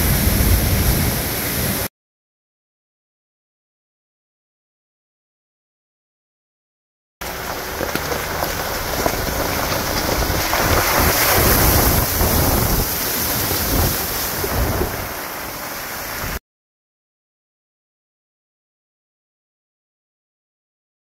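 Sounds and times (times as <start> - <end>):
wind buffeting microphone: 0.0 - 1.9, 7.3 - 16.4
tyres rolling on wet gravel: 7.2 - 16.4
wheel splashing through puddle: 7.2 - 16.4.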